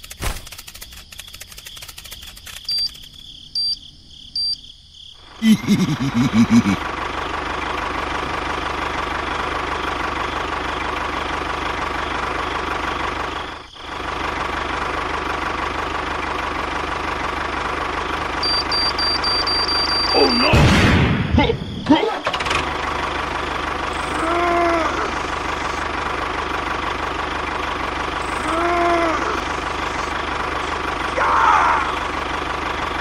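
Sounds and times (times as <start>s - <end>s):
tractor engine running: 0.0s - 3.8s, 5.2s - 33.0s
short high beeps: 18.4s - 20.5s.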